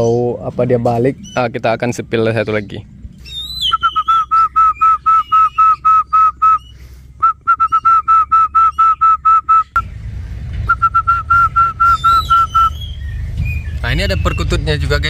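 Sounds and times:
person whistling short notes: 0:03.6 - 0:09.8, 0:10.7 - 0:12.8.

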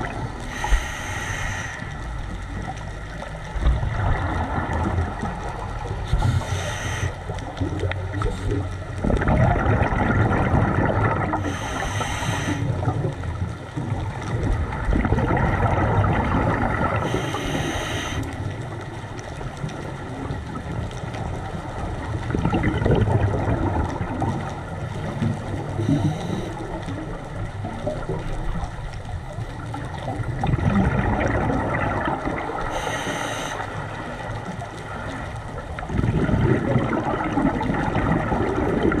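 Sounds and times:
gurgling exhaled bubbles: 0:00.0 - 0:39.0
regulator hissing inhalation: 0:00.4 - 0:02.0, 0:06.1 - 0:07.2, 0:11.4 - 0:12.8, 0:17.0 - 0:18.3, 0:25.8 - 0:26.6, 0:32.7 - 0:33.8.

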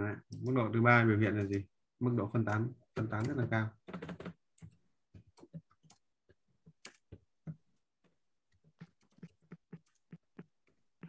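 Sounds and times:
typing on computer keyboard: 0:03.0 - 0:06.1.

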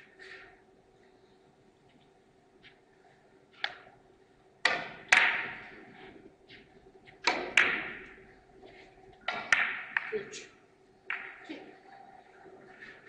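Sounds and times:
sharp hard clicks in hall: 0:03.5 - 0:04.0, 0:04.6 - 0:11.6.

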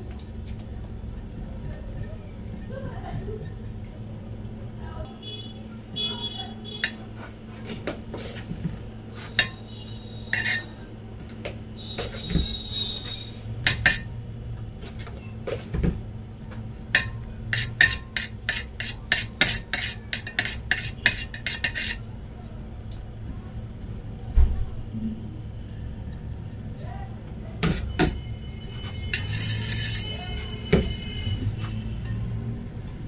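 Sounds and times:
spatula clicking and scraping: 0:06.8 - 0:14.2, 0:16.8 - 0:22.1, 0:27.6 - 0:30.6.

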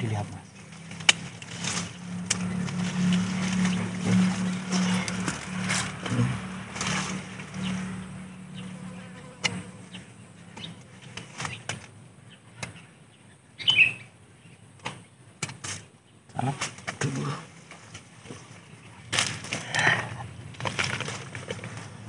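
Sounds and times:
pruning shears snipping: 0:00.7 - 0:08.7.

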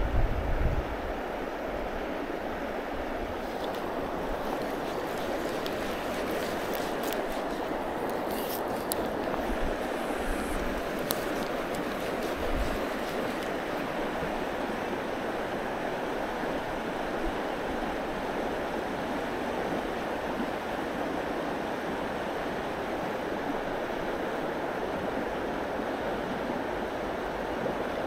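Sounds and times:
stream current rushing: 0:01.0 - 0:28.0.

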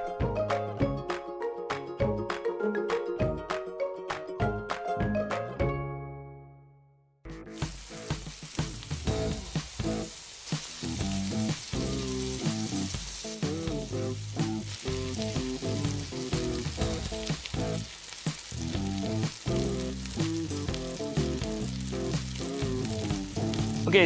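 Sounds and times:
background music: 0:00.0 - 0:24.0
batter sizzling in hot oil: 0:07.5 - 0:24.0.

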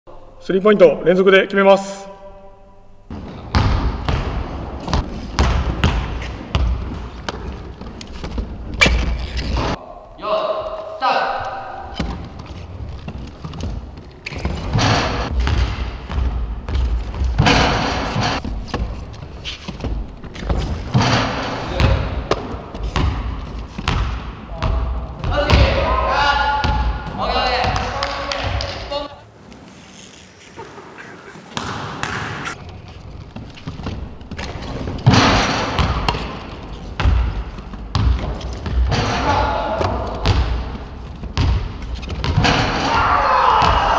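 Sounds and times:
basketball thuds: 0:03.1 - 0:09.8, 0:19.8 - 0:25.8, 0:33.6 - 0:39.1, 0:39.8 - 0:42.9.

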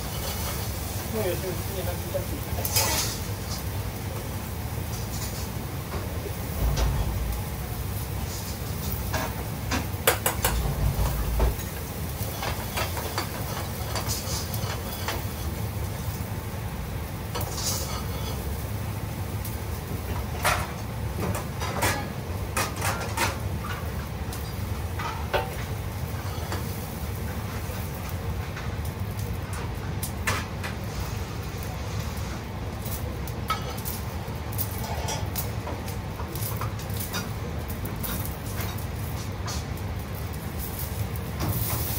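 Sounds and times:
pans and utensils clinking: 0:00.0 - 0:00.8, 0:02.6 - 0:03.7, 0:04.8 - 0:16.2, 0:17.3 - 0:18.6, 0:20.0 - 0:28.7, 0:33.4 - 0:39.8
low background hum: 0:00.0 - 0:41.9.

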